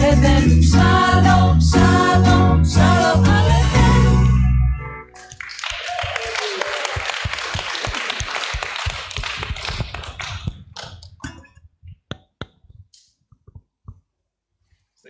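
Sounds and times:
audience applauding: 0:05.2 - 0:11.0.

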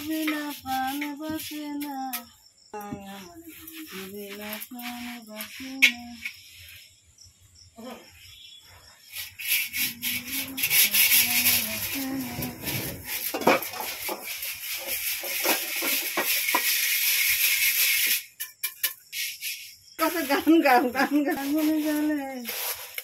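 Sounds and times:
rice rattling in clay strainer: 0:09.4 - 0:23.0.

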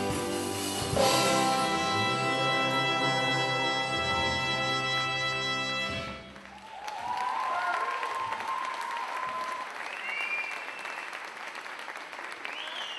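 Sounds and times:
big band final chord: 0:00.0 - 0:06.2
audience applauding and cheering: 0:06.1 - 0:12.9.

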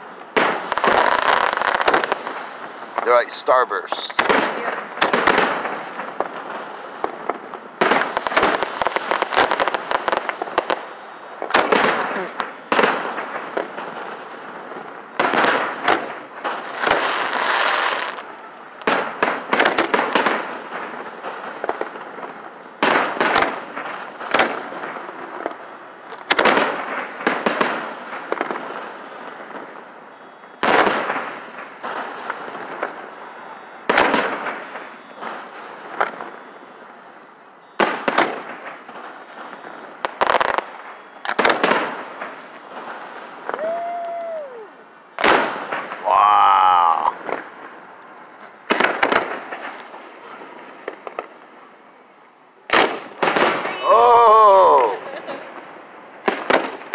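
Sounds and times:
fireworks bursting: 0:00.0 - 0:56.9.

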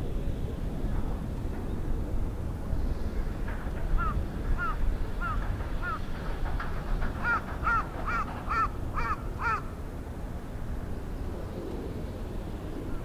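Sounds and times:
bird calling: 0:07.2 - 0:09.8.

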